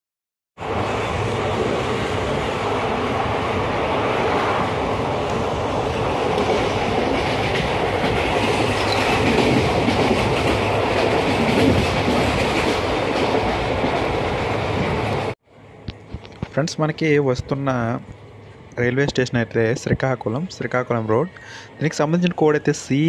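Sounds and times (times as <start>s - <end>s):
rushing air: 0.6s - 16.6s
train wheels on rails: 0.6s - 17.0s.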